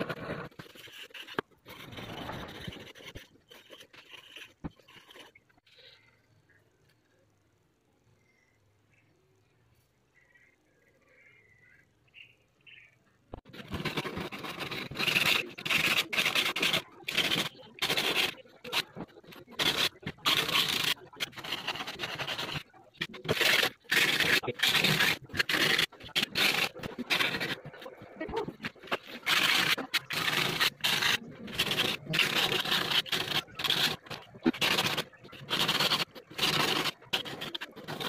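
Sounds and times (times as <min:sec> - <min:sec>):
wire scraping on sandpaper: 0:00.0 - 0:05.8, 0:13.5 - 0:38.0.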